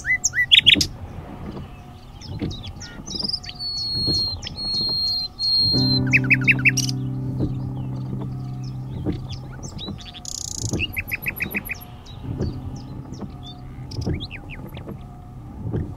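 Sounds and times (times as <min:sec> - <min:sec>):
nightingale singing: 0:01.7 - 0:15.9
dull low thumps: 0:03.8 - 0:15.9
low steady hum: 0:05.4 - 0:15.9.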